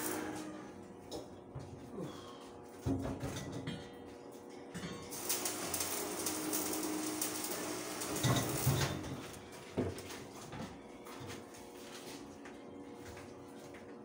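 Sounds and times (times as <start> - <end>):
electric arc welding crackle: 0.0 - 0.7, 5.1 - 9.4.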